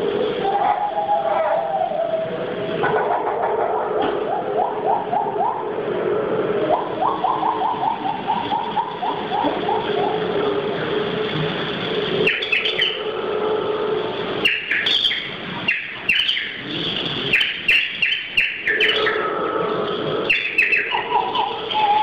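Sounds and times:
low steady drone: 0:00.0 - 0:22.0
bird-call whistle chirping: 0:12.3 - 0:13.0, 0:14.4 - 0:16.6, 0:17.3 - 0:19.2, 0:20.3 - 0:22.0.

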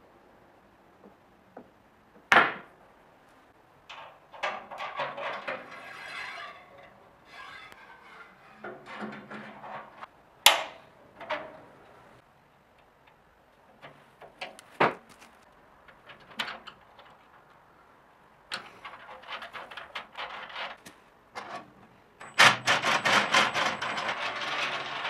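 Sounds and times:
metal parts clanking: 0:03.9 - 0:10.1, 0:22.2 - 0:25.0
metal rattling and scraping: 0:03.9 - 0:10.1, 0:22.2 - 0:25.0.

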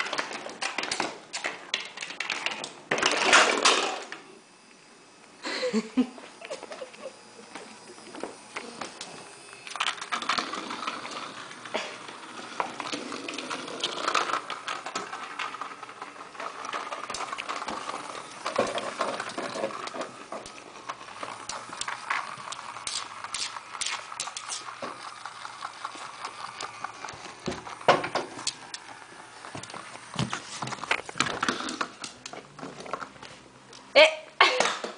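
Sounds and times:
toy clicks and knocks: 0:12.9 - 0:28.9.

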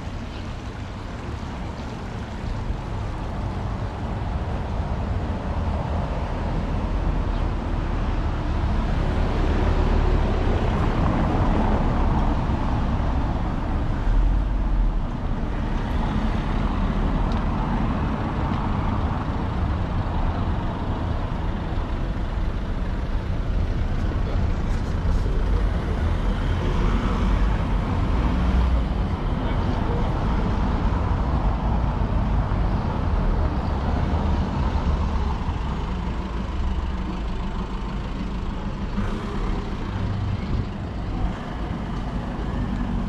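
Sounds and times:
cars driving on cobblestones: 0:00.0 - 0:43.0.

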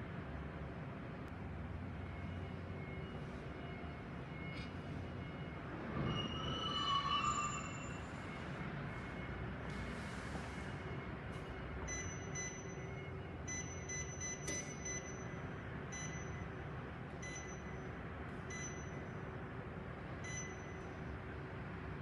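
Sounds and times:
heater control panel beeps: 0:11.9 - 0:16.5, 0:17.2 - 0:17.9, 0:18.5 - 0:19.1, 0:20.2 - 0:20.9.

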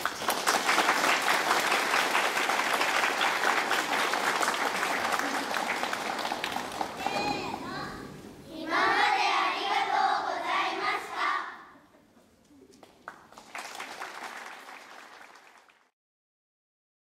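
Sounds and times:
children's choir singing: 0:08.4 - 0:11.8.

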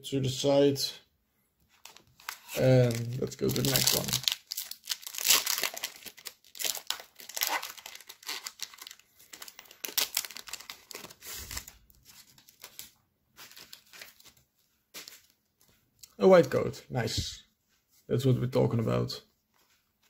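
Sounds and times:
foil wrapper crinkling and tearing: 0:01.8 - 0:14.4.

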